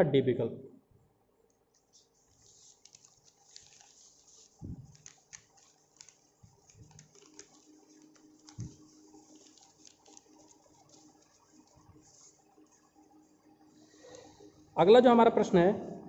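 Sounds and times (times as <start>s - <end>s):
paper rustling: 1.7s - 13.0s.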